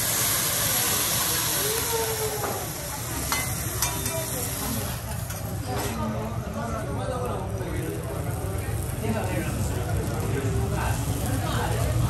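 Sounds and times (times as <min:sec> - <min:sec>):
meat sizzling on a griddle: 0:00.0 - 0:12.0.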